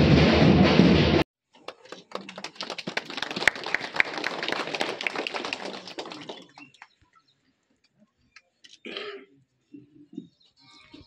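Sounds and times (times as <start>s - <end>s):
small group clapping: 1.6s - 7.1s.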